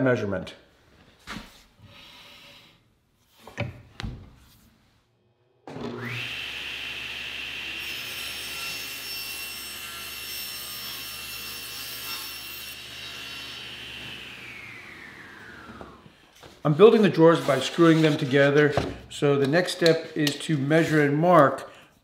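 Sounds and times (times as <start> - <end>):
table saw whine: 5.7 - 16.3
saw blade cutting plywood: 5.8 - 16.0, 17.3 - 18.8.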